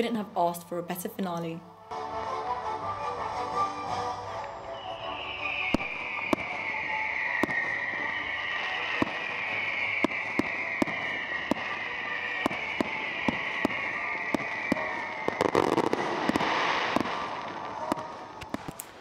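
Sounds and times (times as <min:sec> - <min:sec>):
firework shells bursting: 0:05.5 - 0:19.0.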